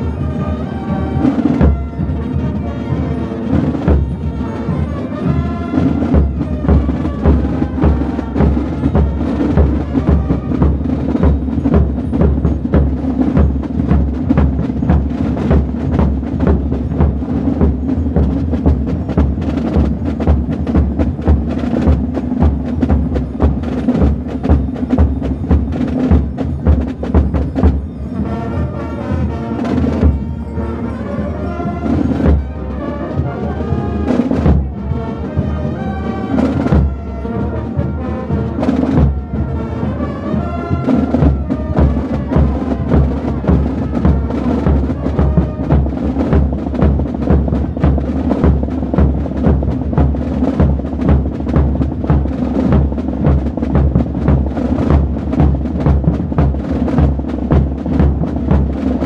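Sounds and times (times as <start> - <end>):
band playing tune: 0.0 - 59.0
drums beating dance rhythm: 6.0 - 27.9, 41.1 - 59.0.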